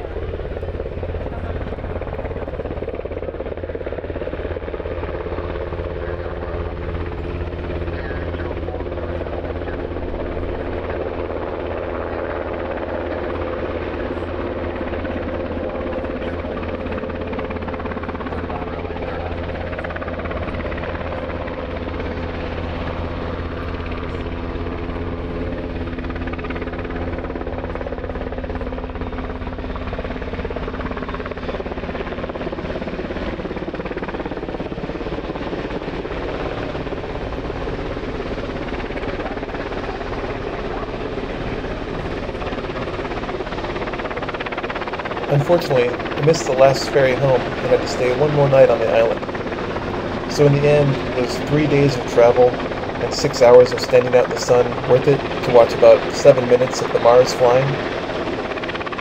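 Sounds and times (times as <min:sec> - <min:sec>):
piston aircraft engines droning: 0:00.0 - 0:59.0
steady tones: 0:44.4 - 0:58.9.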